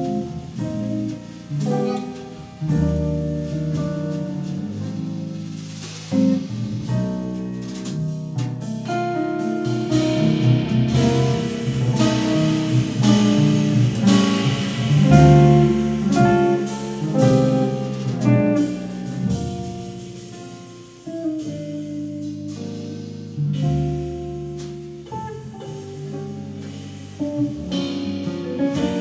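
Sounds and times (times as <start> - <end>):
drum and cymbal strokes: 0.0 - 29.0
jazz band playing: 0.0 - 29.0.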